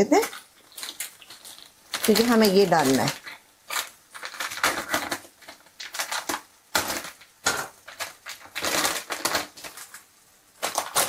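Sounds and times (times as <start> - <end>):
plastic wrapping crinkling: 0.0 - 11.0.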